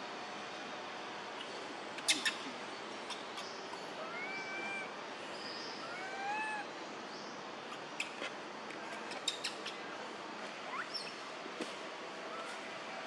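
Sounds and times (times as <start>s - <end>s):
baby monkey coo call: 4.0s - 5.0s, 5.8s - 6.7s.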